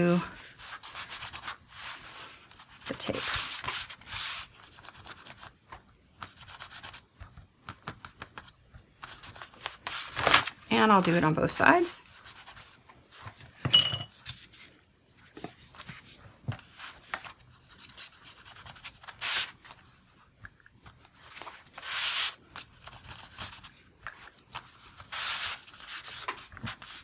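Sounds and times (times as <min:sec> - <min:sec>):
hands rubbing paper envelope: 0:00.3 - 0:10.5, 0:15.6 - 0:27.0.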